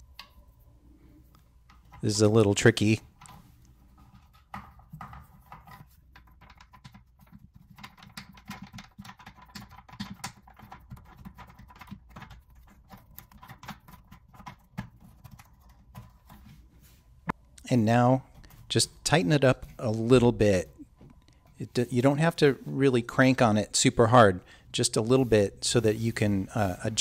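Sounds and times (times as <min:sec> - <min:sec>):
plastic nut clicks and scrapes: 0:03.1 - 0:16.4.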